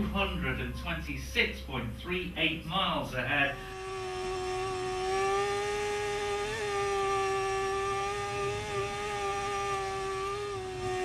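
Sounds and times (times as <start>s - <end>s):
racing motorcycle engine high revs: 2.3s - 11.0s.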